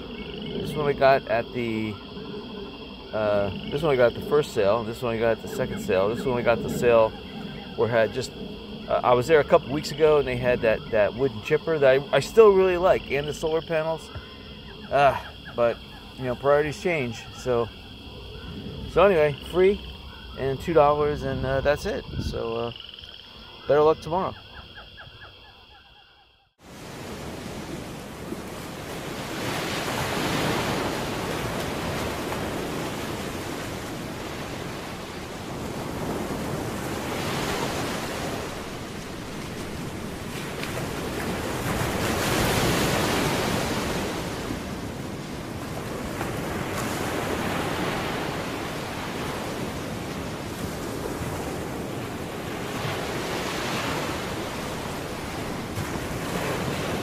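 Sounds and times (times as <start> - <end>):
waves breaking on shore: 0.0 - 22.7, 26.6 - 57.0
wind on microphone: 21.0 - 22.8.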